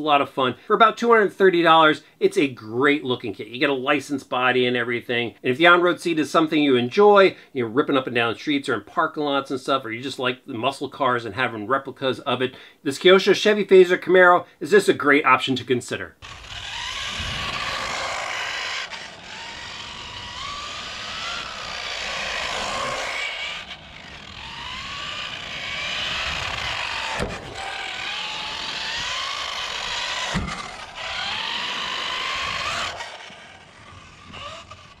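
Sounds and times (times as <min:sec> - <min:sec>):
tyre noise on coarse asphalt: 0:16.1 - 0:35.0
electric motor whining: 0:16.2 - 0:35.0
sharp knocks: 0:30.3 - 0:30.6.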